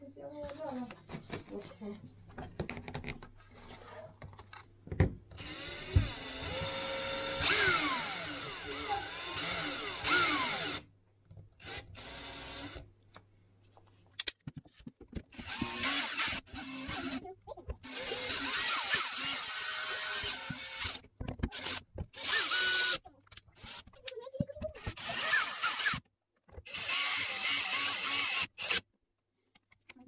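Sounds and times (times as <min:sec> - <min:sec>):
cordless drill whining: 0:05.4 - 0:10.8, 0:11.6 - 0:12.8, 0:15.3 - 0:17.2, 0:17.8 - 0:23.0, 0:24.8 - 0:26.0, 0:26.6 - 0:28.8.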